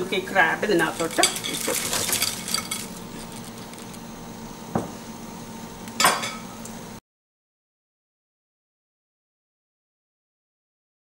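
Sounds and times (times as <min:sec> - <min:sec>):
low steady hum: 0:00.0 - 0:07.0.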